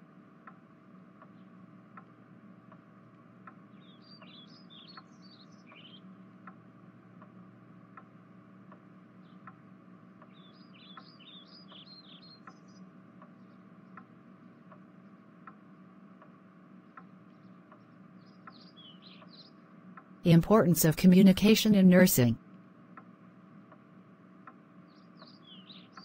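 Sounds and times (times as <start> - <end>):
low steady hum: 0.0 - 26.0
soft ticks: 0.4 - 0.6, 1.2 - 9.6, 10.2 - 19.3, 19.9 - 20.1, 22.5 - 26.0
birds chirping: 3.7 - 6.1, 24.9 - 26.0.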